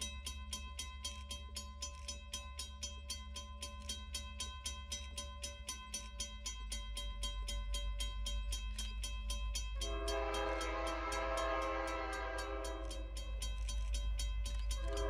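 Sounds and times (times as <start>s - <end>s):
steam locomotive exhaust chuffs: 0.0s - 15.0s
steam whistle chime: 9.8s - 13.4s, 14.7s - 15.0s.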